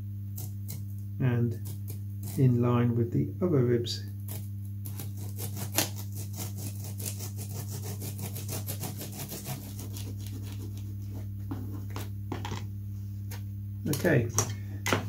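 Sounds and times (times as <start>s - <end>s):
saw cutting wood: 4.3s - 11.2s.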